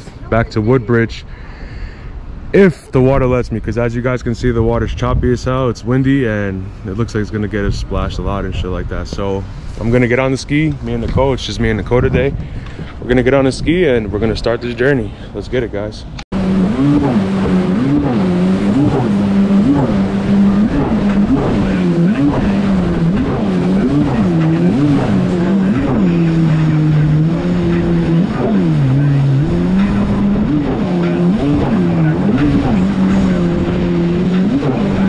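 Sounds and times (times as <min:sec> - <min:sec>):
jet ski engine surging: 0:16.3 - 0:35.0
wind and spray rushing: 0:16.3 - 0:35.0.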